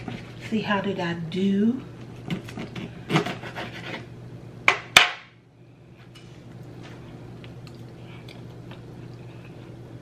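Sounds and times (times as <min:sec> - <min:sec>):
faint mouth eating sounds: 0:07.3 - 0:09.8.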